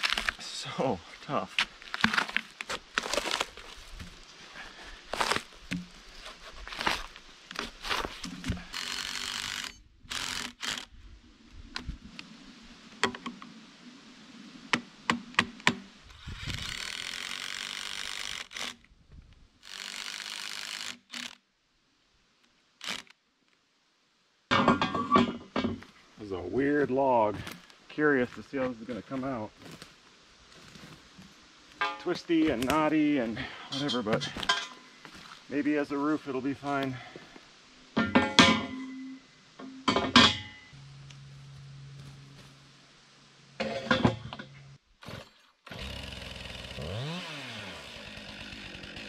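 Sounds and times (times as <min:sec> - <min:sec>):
bark cracking and scraping: 0:00.0 - 0:00.4, 0:01.6 - 0:04.2
cordless drill driving screws: 0:08.6 - 0:10.9, 0:16.4 - 0:18.8, 0:19.6 - 0:21.4, 0:22.8 - 0:23.1.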